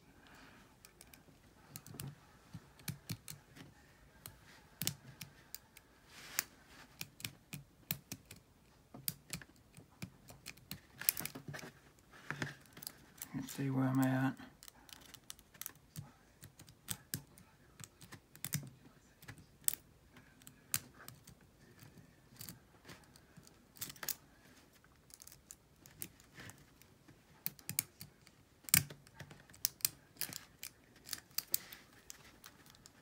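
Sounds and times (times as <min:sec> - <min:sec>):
lock pick clicking and scraping: 0:27.4 - 0:33.0.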